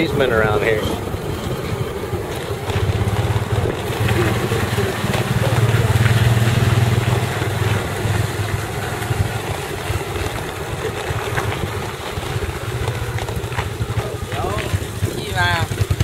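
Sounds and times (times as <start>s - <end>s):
wind noise on microphone: 0.0s - 4.9s
motorbike engine running: 0.0s - 16.0s.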